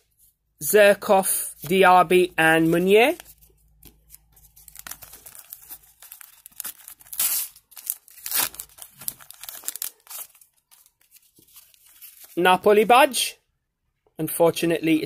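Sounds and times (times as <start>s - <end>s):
wrapper crinkling: 2.6s - 12.4s
wrapper ripping: 4.0s - 12.4s.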